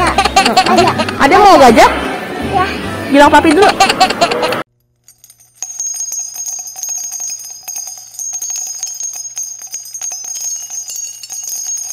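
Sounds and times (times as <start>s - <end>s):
jingling bells: 3.6s - 11.9s
steady high ringing: 4.9s - 11.9s.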